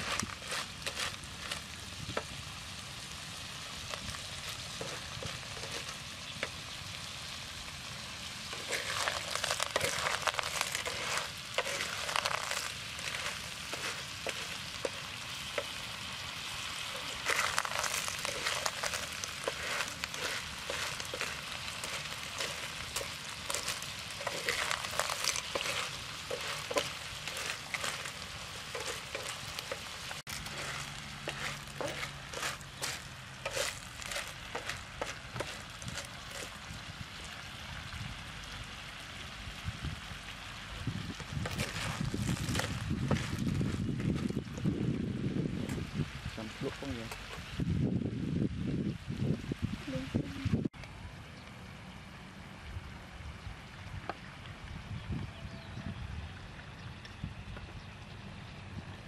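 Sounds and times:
shellfish sizzling in pan: 0.0 - 49.6.

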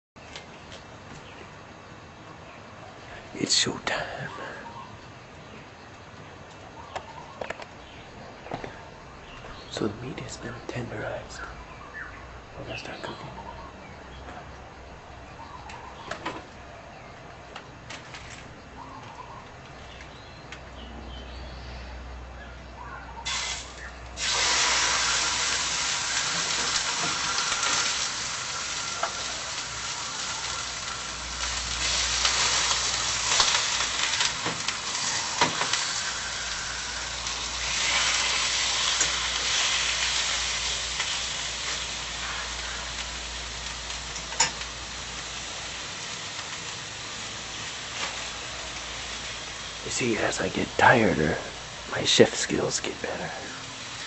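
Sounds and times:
steak sizzling in a frying pan: 23.3 - 50.1, 53.6 - 54.0.

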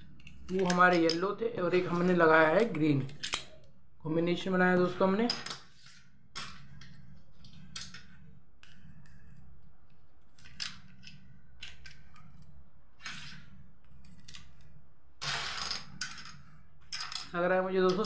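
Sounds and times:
steady low hum: 0.0 - 18.0
plastic tiles clicking: 0.1 - 1.3, 15.5 - 18.0.

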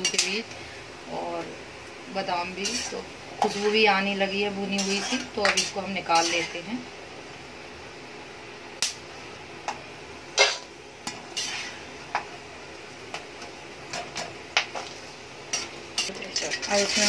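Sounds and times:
faint steady hiss: 0.0 - 17.0
metal spatula scraping iron pan: 2.6 - 3.9, 4.6 - 6.7, 11.3 - 11.9, 15.5 - 17.0.

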